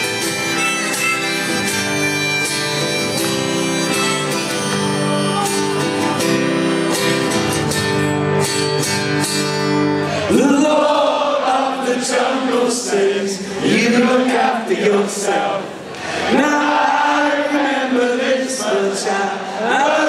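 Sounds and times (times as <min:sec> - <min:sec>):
acoustic guitar strumming: 0:00.0 - 0:12.6.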